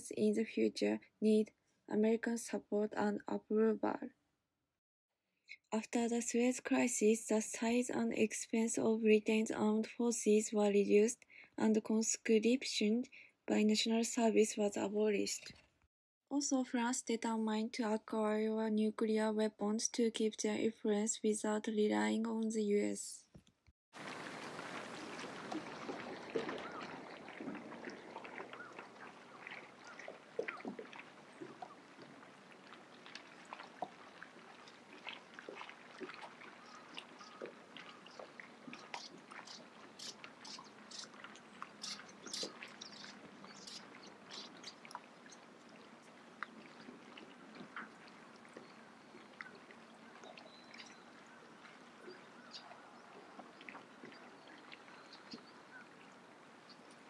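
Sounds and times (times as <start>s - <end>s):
small splashes and clicks: 23.4s - 57.0s
water lapping and trickling: 24.0s - 57.0s.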